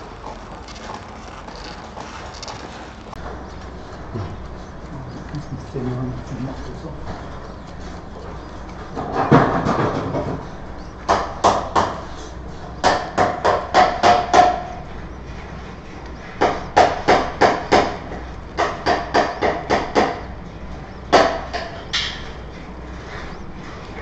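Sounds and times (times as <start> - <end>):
sharp knocks: 8.8 - 12.1, 12.8 - 14.8, 16.4 - 20.3, 21.1 - 22.4.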